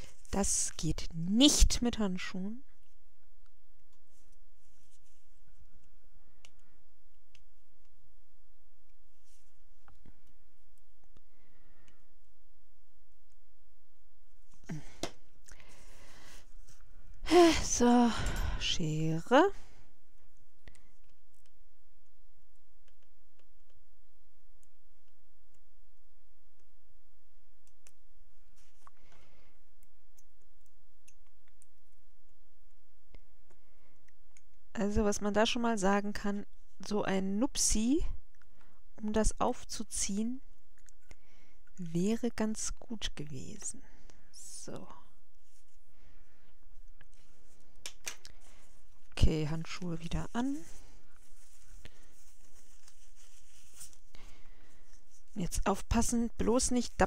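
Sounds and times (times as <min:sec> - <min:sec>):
light rustles of hands: 0:04.0 - 0:06.0, 0:46.5 - 0:55.4.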